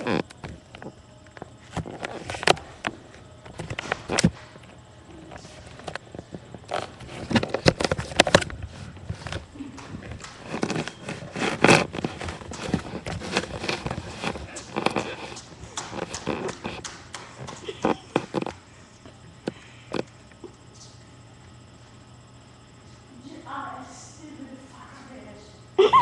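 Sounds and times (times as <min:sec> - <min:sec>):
footsteps with knocks and thumps: 0:05.4 - 0:18.6.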